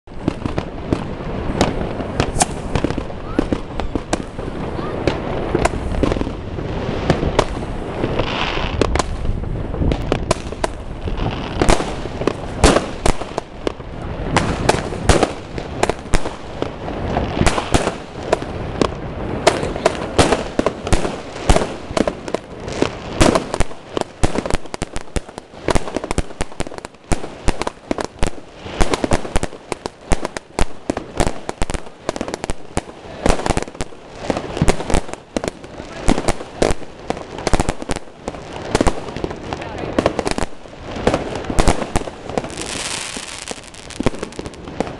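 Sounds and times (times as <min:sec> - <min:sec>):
firework launch thumps and bangs: 0:01.6 - 0:04.3.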